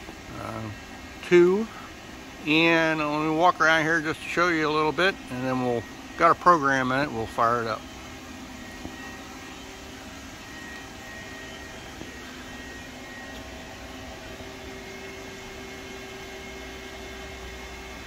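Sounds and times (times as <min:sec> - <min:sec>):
faint steady tones: 0:00.0 - 0:18.0
machine shop hum and hiss: 0:00.0 - 0:18.0.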